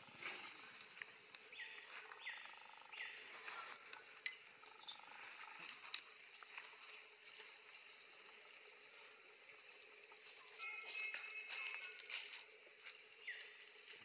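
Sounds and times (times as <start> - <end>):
short chirping calls: 10.2 - 12.5.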